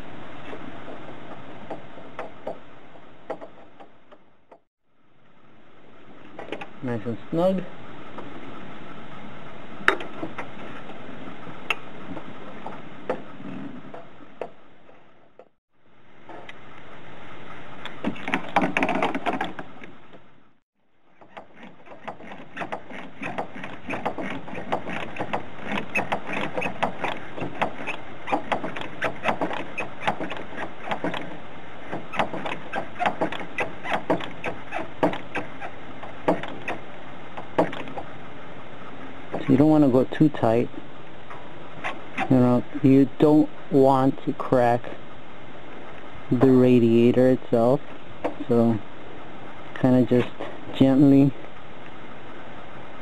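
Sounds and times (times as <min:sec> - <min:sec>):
rustling: 0:21.0 - 0:39.9.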